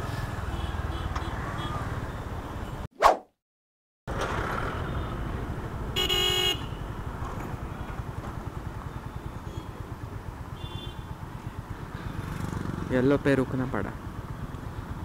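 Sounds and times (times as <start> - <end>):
vehicle horn honking: 6.0 - 6.9, 10.5 - 11.1.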